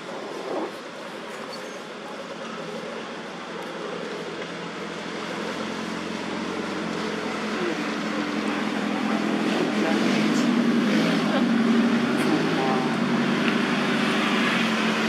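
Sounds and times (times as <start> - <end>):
tyre noise on road: 0.0 - 15.0
vehicle engine hum: 0.0 - 15.0.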